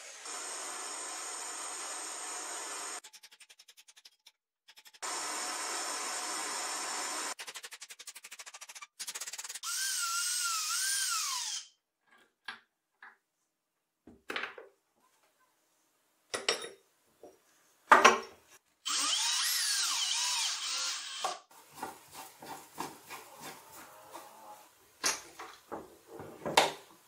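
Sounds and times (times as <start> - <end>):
cordless drill motor whine: 18.9 - 21.4.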